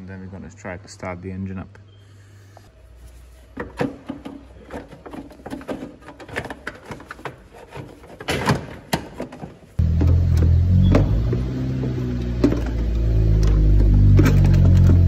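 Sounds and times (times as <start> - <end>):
hoses clicking and knocking: 3.5 - 15.0
loud low hum: 9.8 - 15.0.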